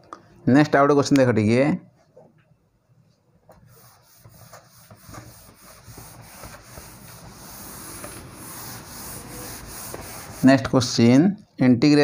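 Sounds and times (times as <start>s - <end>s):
cloth rubbing on whiteboard: 3.5s - 11.1s.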